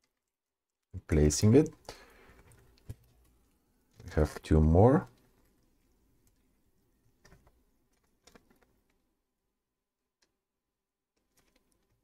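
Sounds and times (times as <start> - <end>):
faint ticks and rustles of tape: 0.0 - 4.4, 5.0 - 9.1, 11.1 - 12.0.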